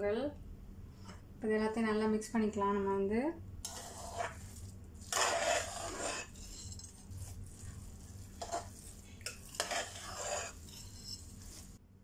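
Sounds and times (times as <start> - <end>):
metal spoon scraping a pot: 3.6 - 11.8.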